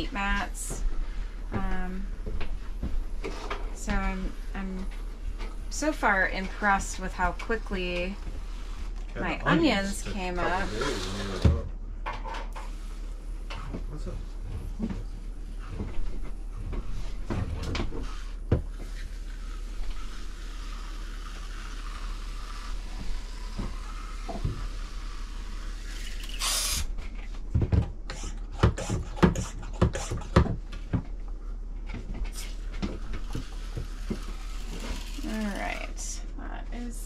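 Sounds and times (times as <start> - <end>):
short hiss: 26.0 - 26.9.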